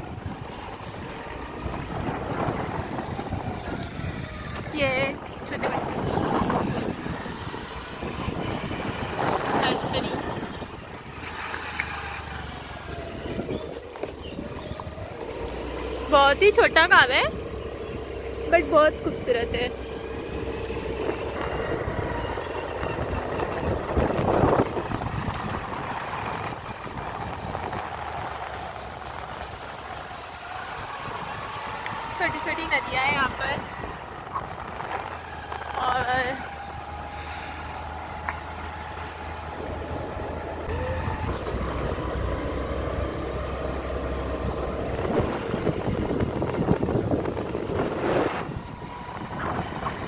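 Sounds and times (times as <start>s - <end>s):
vehicle engine and road noise: 0.0s - 50.0s
wind buffeting microphone: 0.0s - 50.0s
rush of noise: 44.9s - 50.0s.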